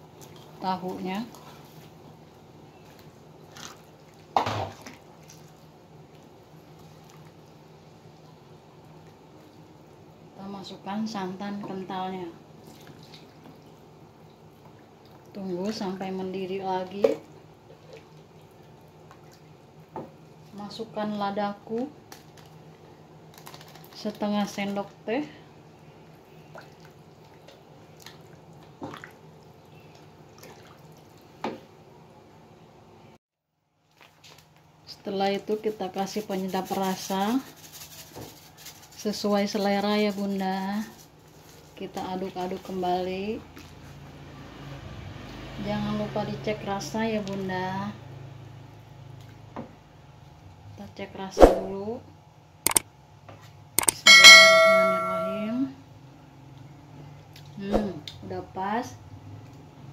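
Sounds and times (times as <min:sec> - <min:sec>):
wet splash: 0:03.5 - 0:07.5, 0:30.3 - 0:31.3.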